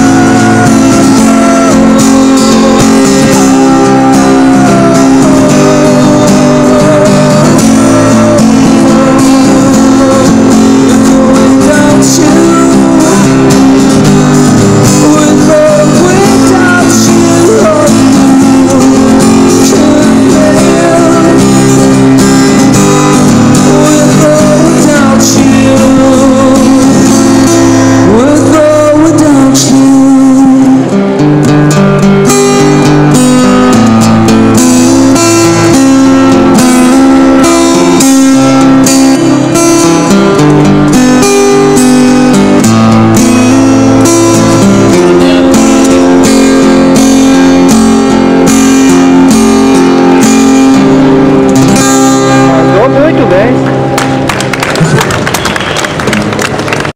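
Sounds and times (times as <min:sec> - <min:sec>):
man singing: 0:00.0 - 0:31.0, 0:34.8 - 0:40.2
acoustic guitar strumming: 0:00.0 - 0:56.9.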